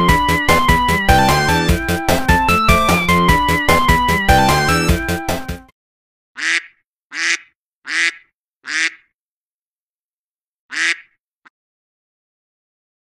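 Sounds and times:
duck quacking: 6.4 - 9.1, 10.7 - 11.2.

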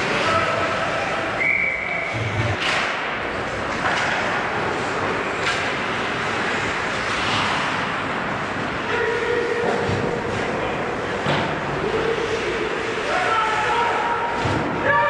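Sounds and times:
skates scraping on ice: 2.1 - 14.6
hockey stick clacks: 2.5 - 7.9.

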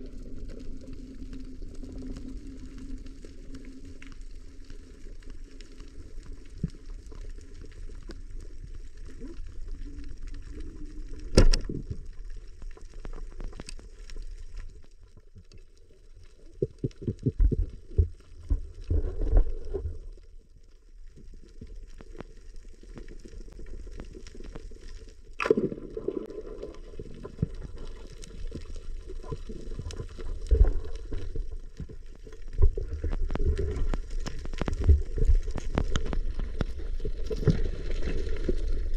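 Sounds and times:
sharp clicks: 11.3 - 11.7
muffled underwater rush: 15.7 - 38.9.

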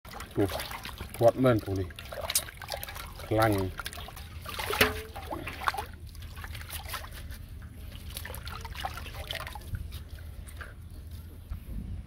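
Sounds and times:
water splashing in metal basin: 0.1 - 10.8
water trickling: 0.1 - 11.6.

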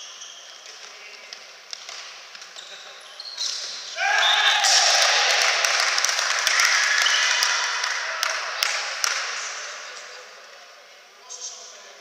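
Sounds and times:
crowd cheering and clapping: 4.0 - 9.4
separate hand claps: 5.3 - 9.4.

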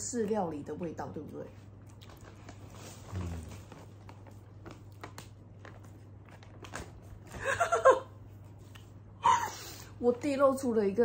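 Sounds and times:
steady low hum: 0.0 - 11.0
potato chips being chewed: 1.8 - 6.9.

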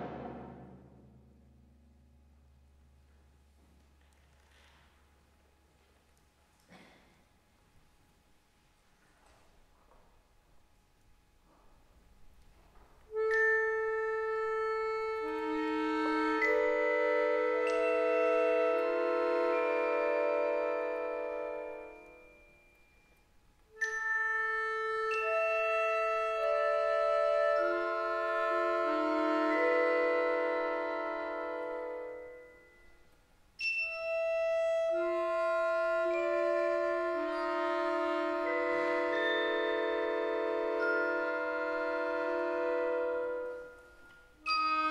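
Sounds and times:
accordion chords: 13.1 - 22.7, 23.7 - 32.8, 33.9 - 44.9
mallet percussion: 13.2 - 35.2, 35.8 - 44.9.

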